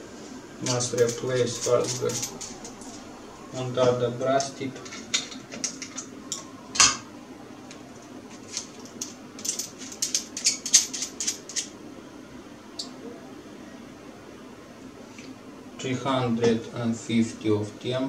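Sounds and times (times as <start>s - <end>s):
metal hand tools clinking: 0.6s - 3.1s.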